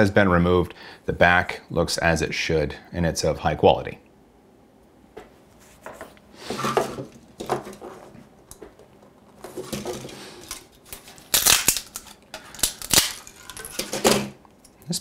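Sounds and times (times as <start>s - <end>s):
plastic parts clicking and rustling: 6.6s - 14.8s
plastic snapping and cracking: 9.8s - 14.4s.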